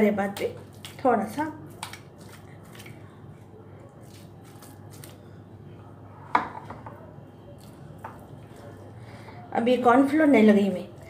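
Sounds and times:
low steady hum: 0:00.0 - 0:11.0
wet squishing of fish in bowl: 0:00.1 - 0:05.6, 0:07.5 - 0:09.1.

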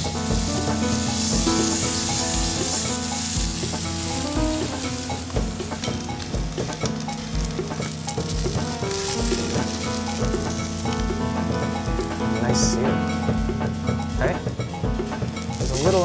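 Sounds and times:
background music with low beat: 0:00.0 - 0:16.0
steak sizzling in a skillet: 0:00.0 - 0:16.0.

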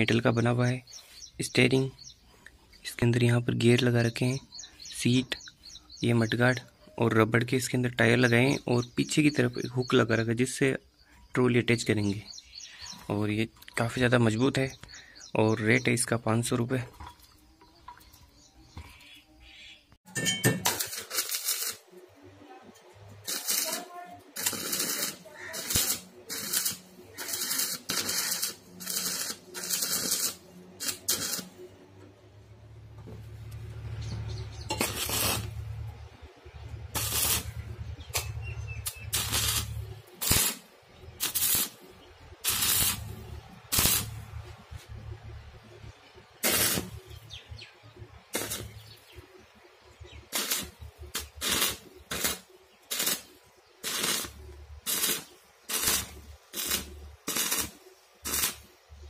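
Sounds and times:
welding arc crackling: 0:20.4 - 0:22.1, 0:22.8 - 0:31.8, 0:33.2 - 0:47.4, 0:48.2 - 0:59.0.

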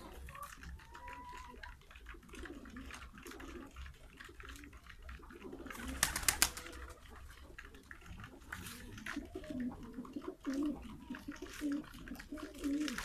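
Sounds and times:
pigeons cooing: 0:00.0 - 0:13.0
pigeons pecking seeds on concrete: 0:00.0 - 0:13.0
sharp clicks or wing flaps: 0:05.8 - 0:06.8.

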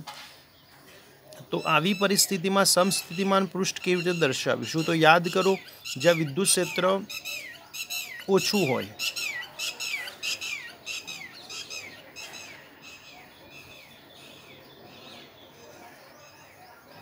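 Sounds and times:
bird squawking: 0:01.6 - 0:13.2.

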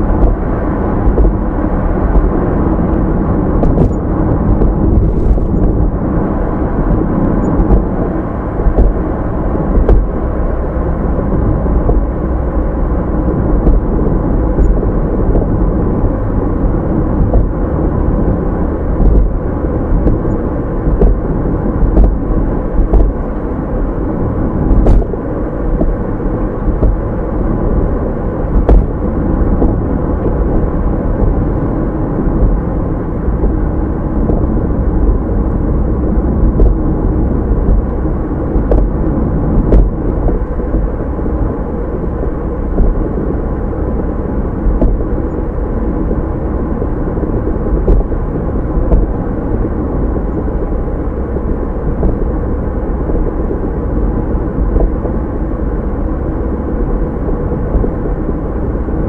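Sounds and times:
car engine rumble: 0:00.0 - 0:59.0
road noise: 0:00.0 - 0:59.0
faint clicks and knocks: 0:00.2 - 0:01.4, 0:03.6 - 0:05.9, 0:11.8 - 0:12.2, 0:17.1 - 0:17.6, 0:28.5 - 0:31.4, 0:46.8 - 0:48.1.

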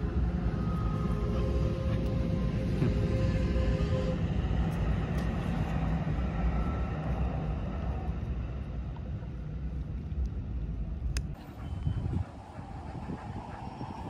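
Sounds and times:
distant engine rumble: 0:00.0 - 0:14.0.

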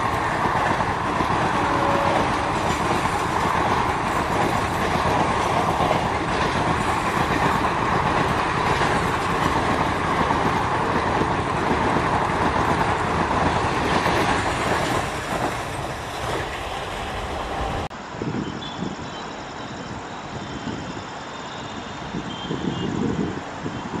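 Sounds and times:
train wheels rushing on rail: 0:00.0 - 0:24.0.

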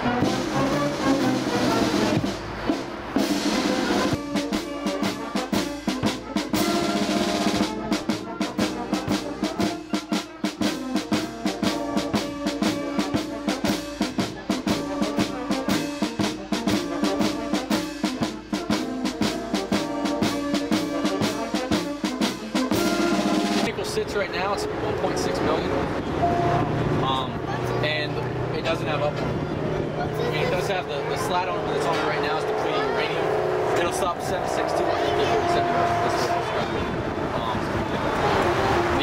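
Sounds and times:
held chords: 0:00.0 - 0:39.0
fast drum beat with snare: 0:00.2 - 0:24.1.

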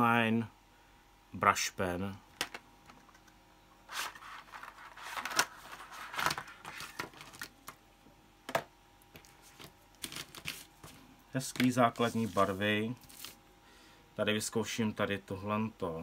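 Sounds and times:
cardboard box rustling and scraping: 0:11.9 - 0:13.4.

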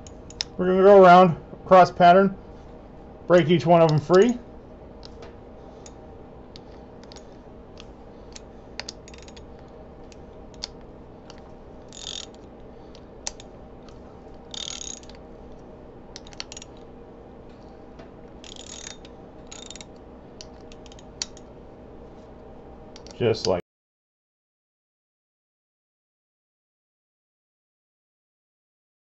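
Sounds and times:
steady low hum: 0:00.0 - 0:23.6
ratcheting wrench clicking: 0:07.0 - 0:07.3, 0:08.3 - 0:09.5, 0:11.3 - 0:12.5, 0:13.2 - 0:13.5, 0:14.5 - 0:15.2, 0:16.2 - 0:16.8, 0:18.4 - 0:21.5.

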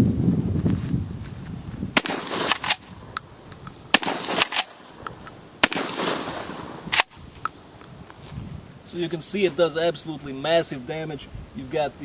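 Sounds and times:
shotgun shots: 0:02.0 - 0:03.1, 0:03.9 - 0:05.0, 0:05.6 - 0:07.2.

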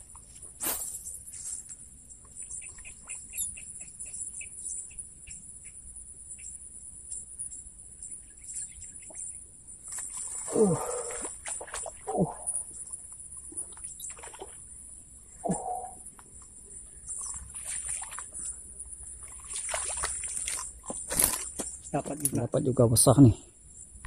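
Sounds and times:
insects droning: 0:00.0 - 0:24.0
bird chirps: 0:02.4 - 0:09.4, 0:15.3 - 0:19.0.

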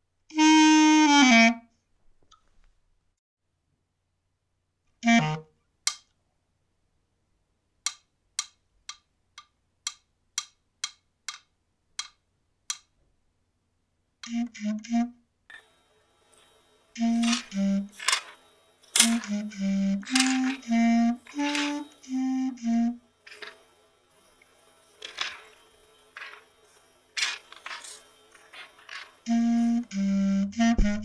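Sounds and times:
clarinet notes: 0:00.3 - 0:01.7, 0:05.0 - 0:05.5, 0:14.2 - 0:15.2, 0:17.0 - 0:23.6, 0:27.2 - 0:31.0.

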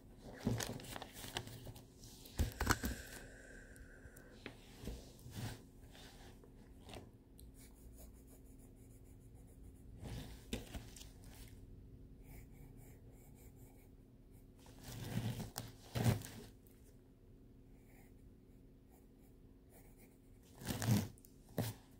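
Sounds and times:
sketchbook pages rustling: 0:00.0 - 0:03.0, 0:10.0 - 0:11.6
pencil scratching on paper: 0:07.6 - 0:10.5, 0:12.2 - 0:14.6, 0:18.8 - 0:21.8.

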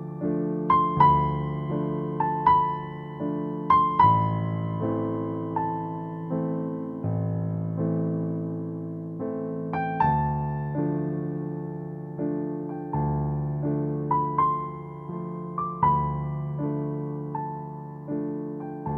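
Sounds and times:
slow piano melody: 0:00.0 - 0:18.9.

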